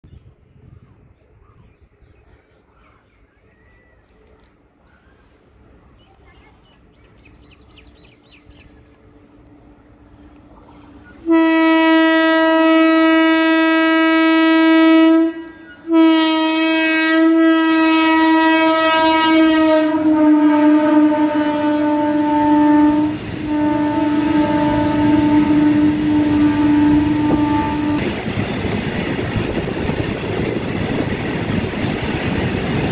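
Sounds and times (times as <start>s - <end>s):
locomotive horn blasts: 11.2s - 28.1s.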